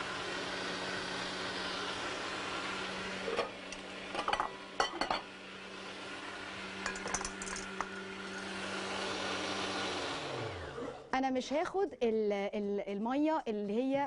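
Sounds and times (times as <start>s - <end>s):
electric blender running: 0.0s - 11.1s
dishes clinking: 4.1s - 5.3s, 6.8s - 7.7s.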